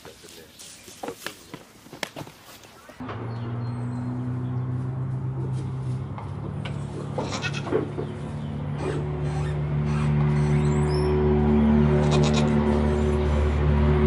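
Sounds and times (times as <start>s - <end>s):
goats bleating: 7.1s - 7.7s, 11.9s - 12.9s.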